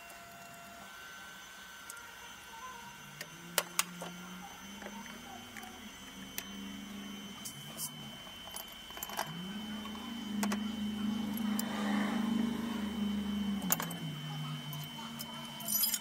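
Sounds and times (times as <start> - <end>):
low hum: 2.5 - 16.0
metal tools clicking: 15.7 - 16.0.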